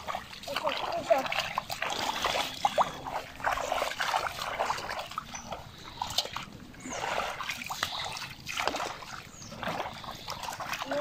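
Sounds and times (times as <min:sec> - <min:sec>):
feet wading in muddy water: 0:00.0 - 0:11.0.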